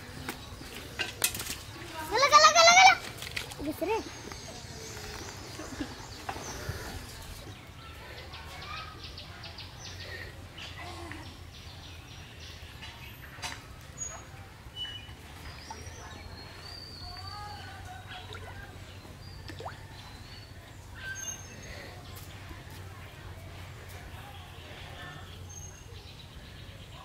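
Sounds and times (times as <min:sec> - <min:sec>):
birds chirping: 0:00.0 - 0:27.0.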